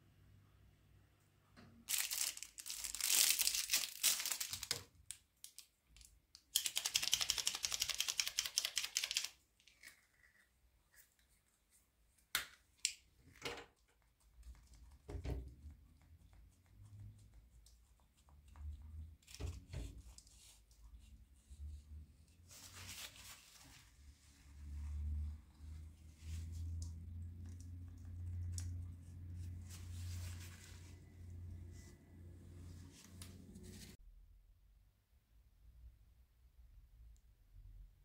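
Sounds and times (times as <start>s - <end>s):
plastic packaging tearing and crinkling: 1.9s - 5.7s.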